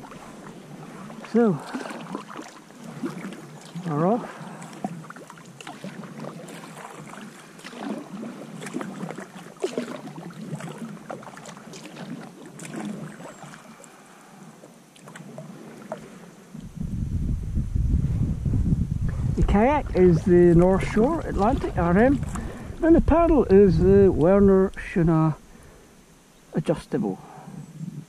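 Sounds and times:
paddle splashing into water: 0:00.0 - 0:14.0, 0:14.9 - 0:16.3, 0:19.1 - 0:22.9
water lapping around hull: 0:00.0 - 0:28.0
wind rumble on microphone: 0:16.4 - 0:25.6, 0:27.3 - 0:28.0.

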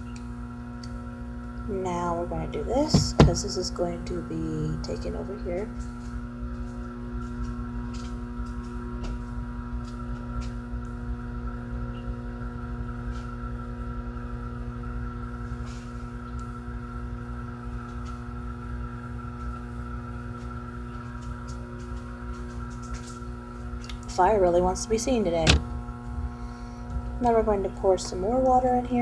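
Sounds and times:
droning hum of steady tones: 0:00.0 - 0:29.0.

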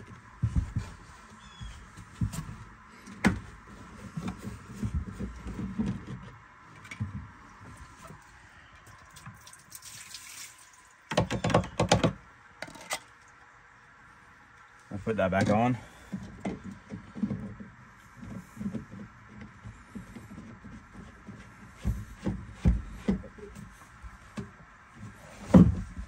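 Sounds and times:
water running out: 0:09.1 - 0:11.0.

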